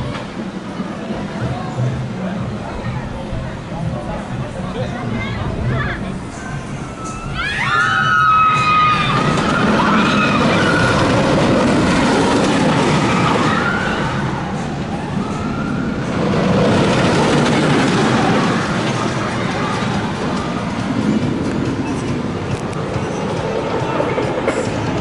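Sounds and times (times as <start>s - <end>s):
roller coaster rumbling on track: 0.0s - 25.0s
riders screaming: 7.2s - 11.4s.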